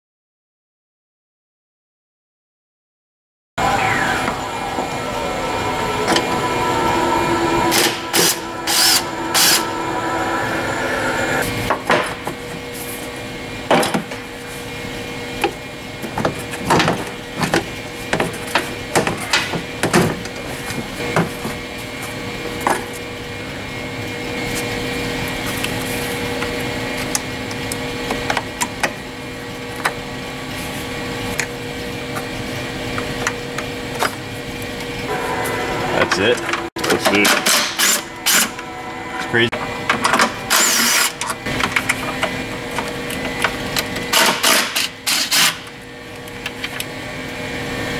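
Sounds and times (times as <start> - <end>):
steady low hum: 3.6 - 13.3, 23.1 - 44.1.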